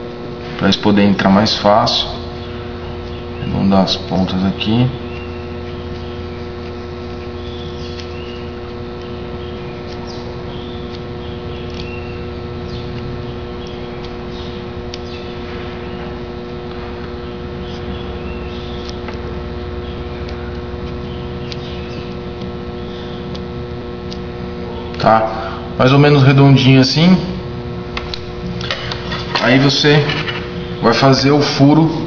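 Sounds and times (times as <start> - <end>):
electrical hum: 0.0 - 32.0
scissors trimming foam: 5.1 - 12.8, 17.6 - 19.3, 20.2 - 24.2.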